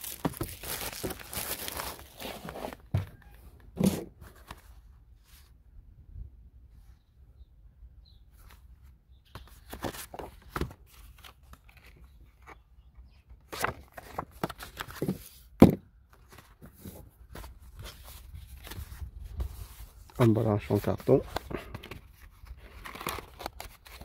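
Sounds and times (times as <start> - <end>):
cardboard box rustling and scraping: 0.0 - 3.2.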